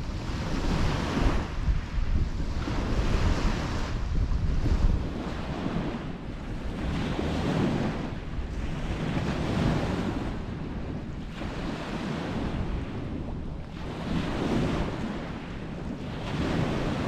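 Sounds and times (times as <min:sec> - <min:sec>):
waves washing onto beach: 0:00.0 - 0:17.0
wind rumbling on microphone: 0:00.0 - 0:17.0.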